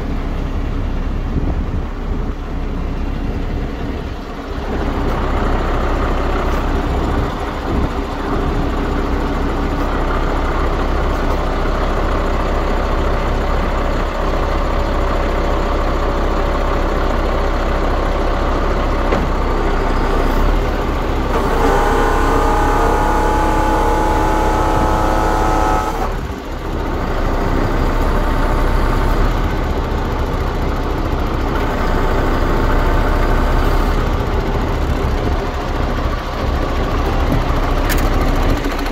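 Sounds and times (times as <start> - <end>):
truck diesel engine running: 0.0 - 38.9
steady multi-tone whine: 20.8 - 26.8.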